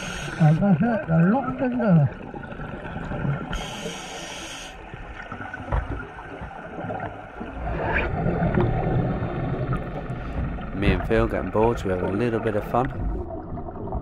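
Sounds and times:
scuba regulator inhale hiss: 0.0s - 0.6s, 3.5s - 4.8s
exhaled air bubbling underwater: 0.0s - 14.0s.

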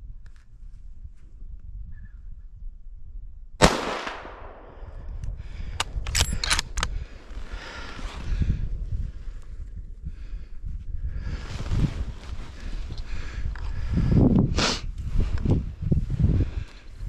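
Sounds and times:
rifle shot with echo: 3.6s - 5.1s
sharp metallic clicks: 5.2s - 7.0s.

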